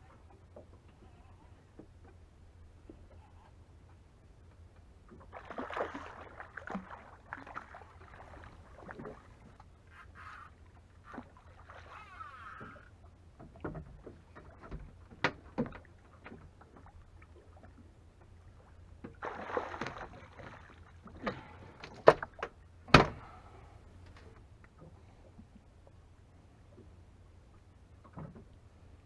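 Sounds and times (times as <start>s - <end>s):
fish splashing in water: 5.2s - 9.5s, 19.1s - 21.6s.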